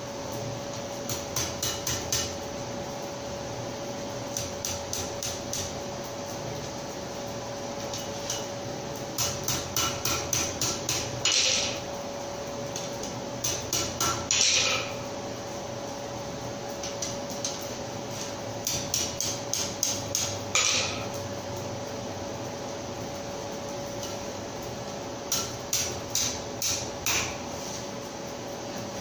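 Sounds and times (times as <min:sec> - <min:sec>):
steady hum: 0:00.0 - 0:29.0
hammer striking iron on anvil: 0:01.1 - 0:02.4, 0:09.2 - 0:11.8, 0:13.4 - 0:15.0, 0:18.6 - 0:21.2, 0:25.3 - 0:27.4.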